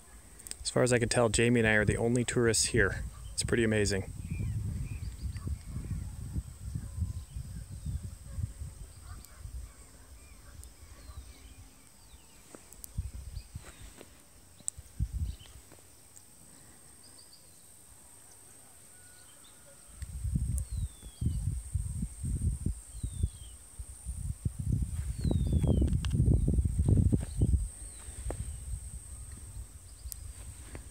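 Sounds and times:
wind buffeting microphone: 1.3 - 11.7, 12.9 - 14.0, 14.8 - 15.6, 20.0 - 30.9
faint bird chirps: 3.0 - 14.0, 16.5 - 21.6, 25.0 - 30.8.

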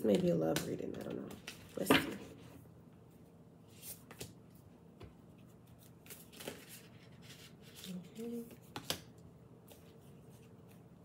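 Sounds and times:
cards shuffling: 5.7 - 10.9.

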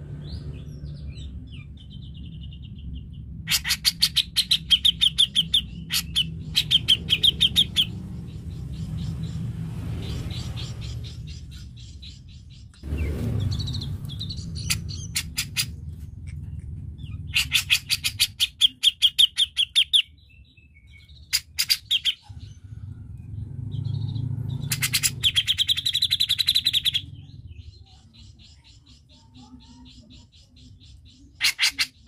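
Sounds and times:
low rumble: 0.0 - 18.8, 22.2 - 28.1
bird chattering: 3.4 - 9.2, 10.0 - 20.2, 21.0 - 22.6, 24.1 - 32.0.

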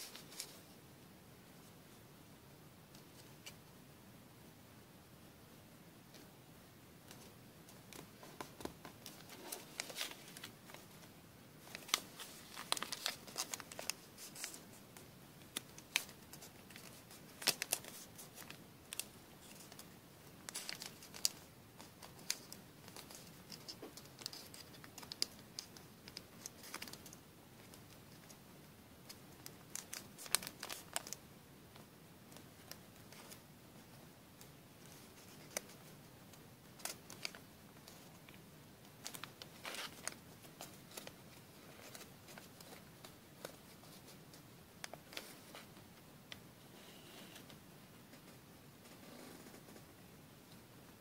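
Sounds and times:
paper rustling and crinkling: 0.0 - 0.7, 7.9 - 14.8, 15.5 - 28.4, 29.1 - 31.2, 36.8 - 38.4, 39.0 - 45.8.

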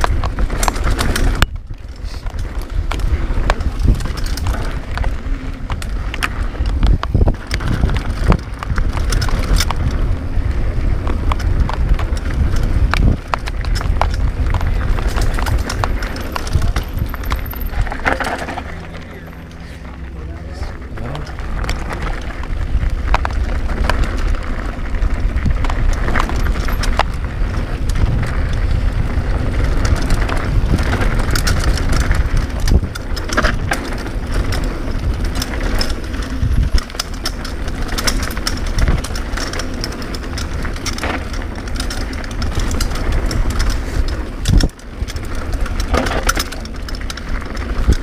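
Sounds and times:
bike clattering and rattling: 0.0 - 48.0
tyres crunching over loose stones: 0.0 - 48.0
wind rumbling on microphone: 0.0 - 48.0
bike chain slapping: 11.1 - 20.1, 25.3 - 48.0.

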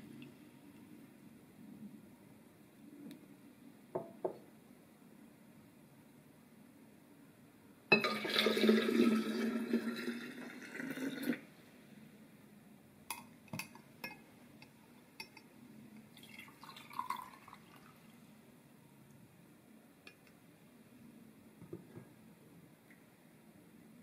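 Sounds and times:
liquid pouring into glass carafe: 7.9 - 11.4, 16.1 - 18.1.

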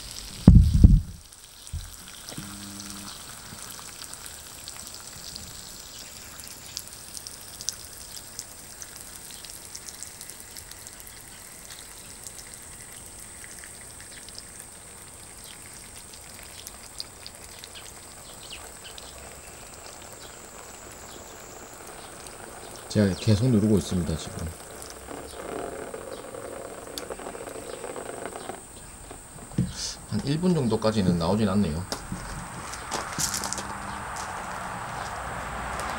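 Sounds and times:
water spraying from nozzle: 0.0 - 35.9
drops pattering on plants: 31.8 - 35.9.

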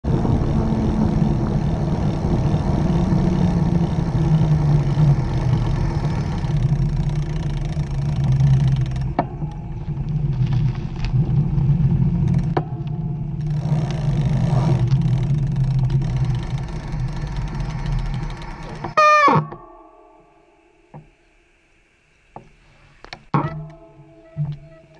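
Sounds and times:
bike tyres rumbling on pavement: 0.0 - 19.0
sharp clicks: 6.4 - 9.6.

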